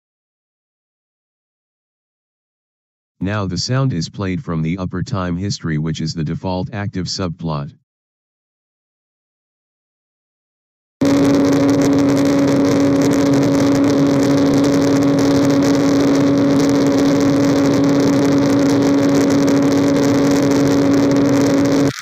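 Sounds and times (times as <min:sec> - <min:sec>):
steady tone with overtone: 0:11.0 - 0:22.0.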